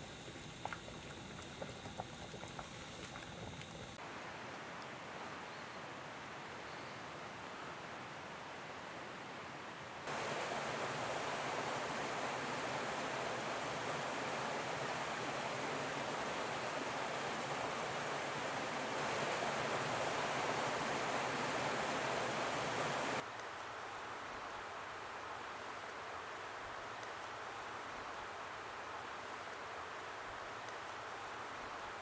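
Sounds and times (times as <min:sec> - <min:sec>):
running water rushing: 0:10.1 - 0:23.2.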